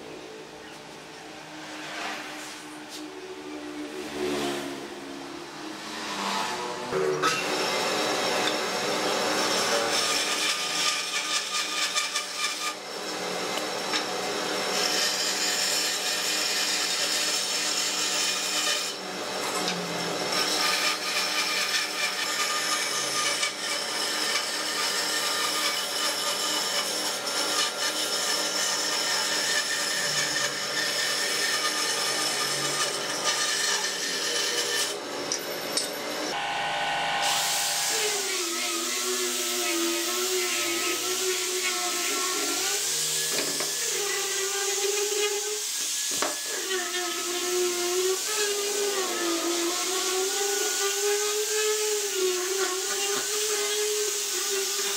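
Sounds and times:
saw blade rasping wood: 0:06.0 - 0:35.5
bandsaw motor hum: 0:15.6 - 0:44.4.

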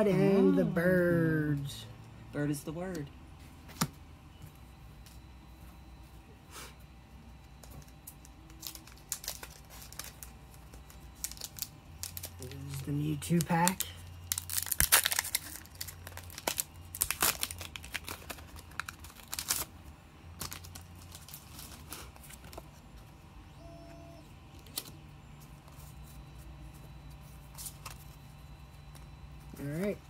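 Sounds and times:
cards being handled: 0:07.6 - 0:19.7, 0:20.4 - 0:23.1, 0:24.6 - 0:29.8
foil wrapper tearing and crinkling: 0:08.0 - 0:22.7.

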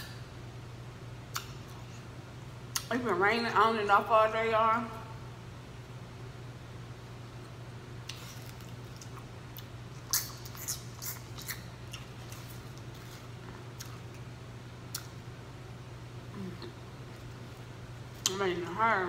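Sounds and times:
low steady hum: 0:00.0 - 0:19.0
chewing: 0:08.1 - 0:14.2.

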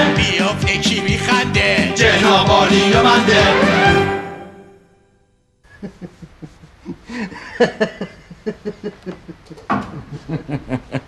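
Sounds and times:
music: 0:00.0 - 0:05.4
man chuckling: 0:05.6 - 0:11.0.

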